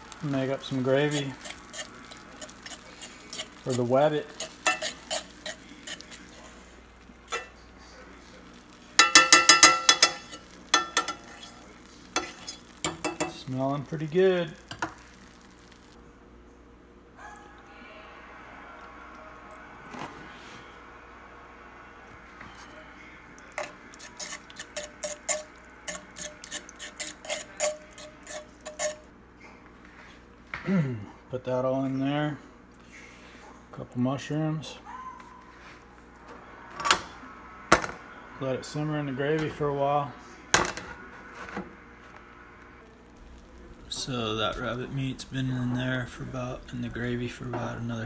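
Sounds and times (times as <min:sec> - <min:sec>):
faint sizzle from pan: 0:00.0 - 0:16.0, 0:17.7 - 0:28.0, 0:36.5 - 0:48.0
fork scraping and clinking skillet: 0:00.5 - 0:07.6, 0:09.0 - 0:13.5, 0:23.6 - 0:29.1.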